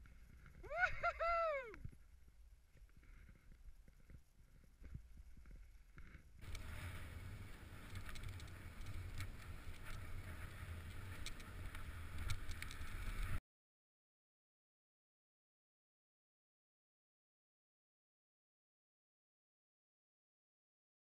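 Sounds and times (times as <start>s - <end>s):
skis scraping through snow: 6.4s - 13.4s.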